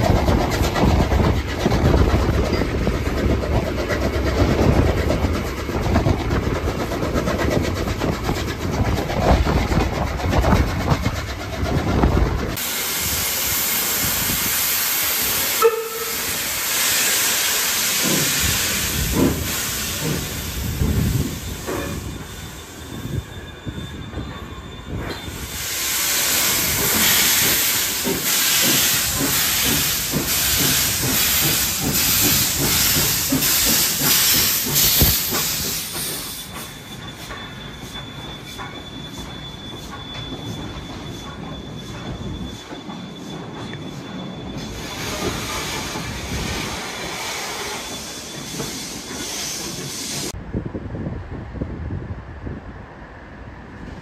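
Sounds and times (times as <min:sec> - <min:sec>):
steam hissing loudly: 0:00.0 - 0:23.4, 0:25.3 - 0:39.3, 0:44.0 - 0:50.4
train low rumble: 0:00.0 - 0:54.0.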